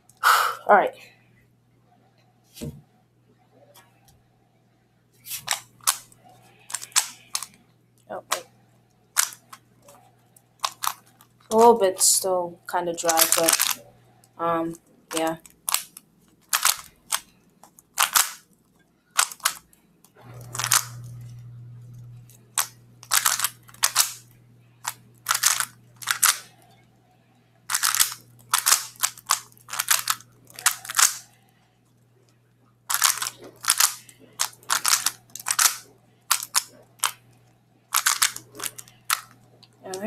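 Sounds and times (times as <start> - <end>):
speed cube clacking turns: 5.3 - 7.6, 9.2 - 12.2, 13.0 - 13.8, 14.6 - 18.5, 19.1 - 19.8, 20.4 - 21.2, 22.3 - 26.6, 27.7 - 31.4, 32.9 - 40.0.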